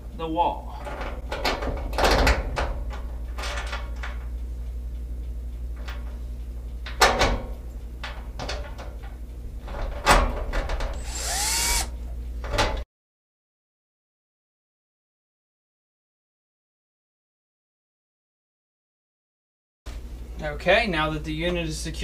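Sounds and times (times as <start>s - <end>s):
cordless drill driving screws: 11.0s - 11.9s.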